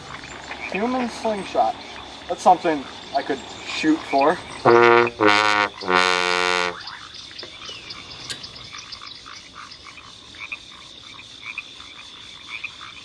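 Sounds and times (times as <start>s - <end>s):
frogs croaking: 0.0s - 13.0s
trombone playing held notes: 4.6s - 6.8s.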